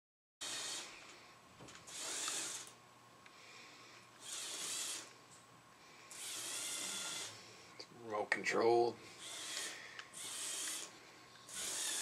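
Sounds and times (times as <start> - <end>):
toy electric motors whirring: 0.4 - 1.1, 1.9 - 2.8, 4.2 - 5.1, 6.1 - 7.4, 9.2 - 12.0.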